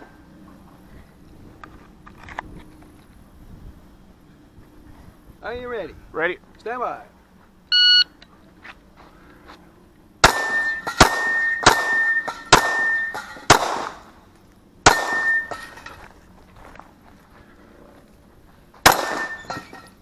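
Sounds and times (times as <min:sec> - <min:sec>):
metallic ringing: 0:10.2 - 0:13.5, 0:14.8 - 0:16.1, 0:18.9 - 0:20.0
pistol shots: 0:10.2 - 0:14.1, 0:14.8 - 0:15.5, 0:18.8 - 0:19.5.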